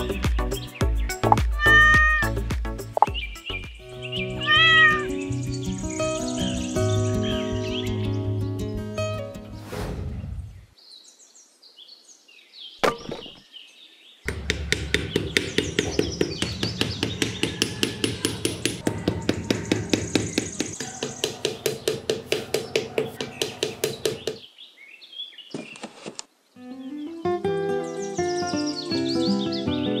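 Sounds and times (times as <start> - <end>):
small hammer tapping: 14.3 - 24.4.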